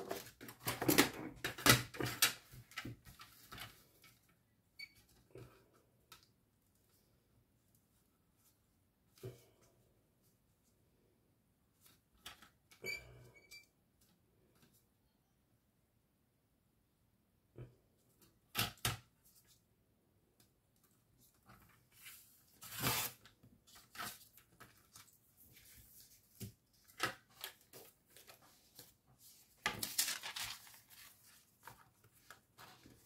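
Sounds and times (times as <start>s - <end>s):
paper rustling: 21.2s - 33.0s
paper tearing: 22.6s - 23.3s.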